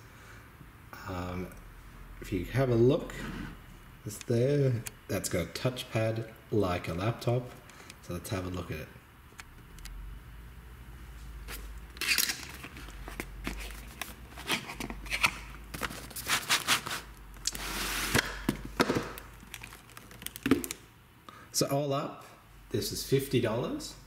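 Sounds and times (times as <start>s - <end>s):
packaging crinkling: 12.0s - 20.8s
packaging rustle: 12.0s - 20.8s.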